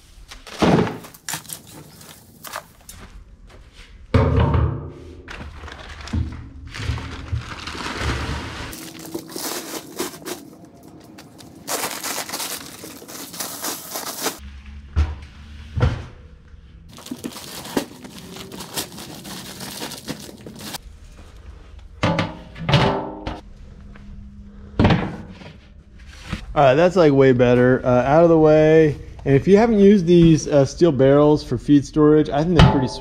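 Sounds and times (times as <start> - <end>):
rustling and scraping: 4.9 - 14.8, 25.2 - 26.5.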